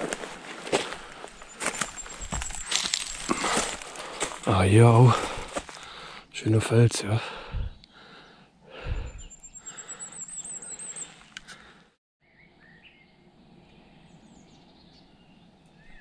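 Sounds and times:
birds singing: 0.7s - 16.0s
high repeated bird trill: 1.4s - 3.3s.

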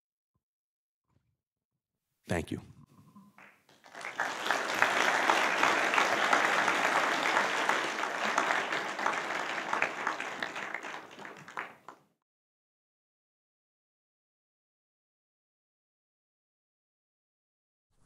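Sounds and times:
audience applauding: 3.4s - 12.1s.

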